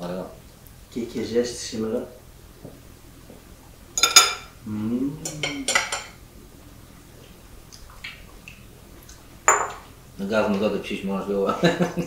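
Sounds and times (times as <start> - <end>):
forks clinking on ceramic bowls: 4.0 - 4.5, 5.3 - 6.2, 9.5 - 9.8.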